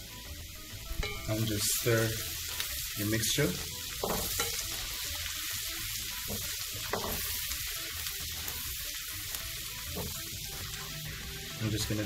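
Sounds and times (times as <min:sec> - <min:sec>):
garlic sizzling in a frying pan: 0:00.0 - 0:12.0
spatula stirring in pan: 0:03.4 - 0:11.3.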